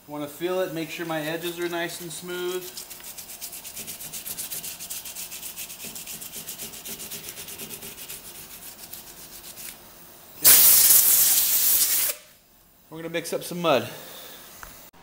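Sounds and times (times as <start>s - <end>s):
hand sanding metal wheel: 0.4s - 9.8s
compressed air hiss: 9.6s - 12.4s, 13.6s - 14.9s.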